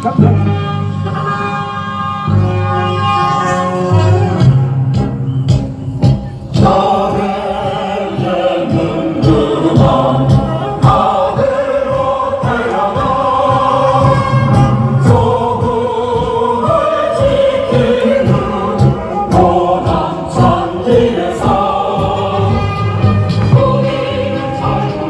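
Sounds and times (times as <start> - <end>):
choir singing: 6.6 - 25.0.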